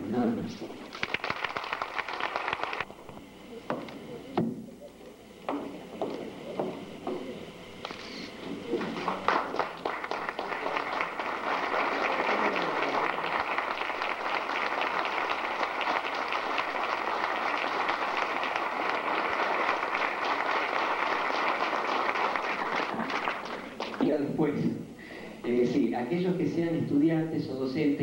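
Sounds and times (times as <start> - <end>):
audience applauding: 0.8 - 2.9, 7.8 - 24.1.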